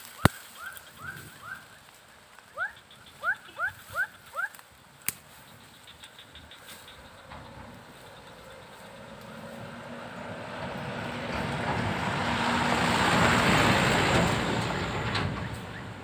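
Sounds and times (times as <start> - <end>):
vehicle passing by: 6.5 - 16.0.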